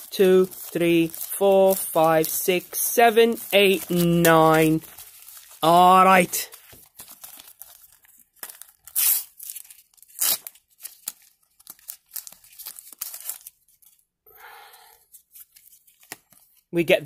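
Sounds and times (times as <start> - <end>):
wrapper rustling and crinkling: 0.0 - 14.1, 15.0 - 16.7
wrapper tearing: 3.1 - 14.0.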